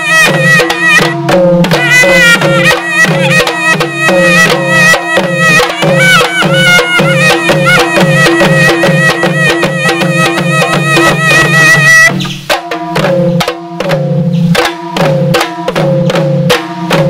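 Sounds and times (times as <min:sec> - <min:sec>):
shrill wind pipe melody: 0:00.0 - 0:12.3
barrel drums beating: 0:00.0 - 0:17.0
small hand drums: 0:00.0 - 0:17.0.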